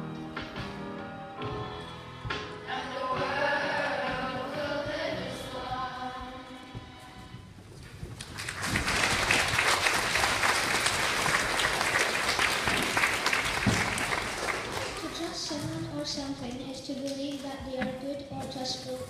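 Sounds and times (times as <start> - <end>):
children's choir singing: 2.7 - 7.1
audience applause: 8.2 - 15.4.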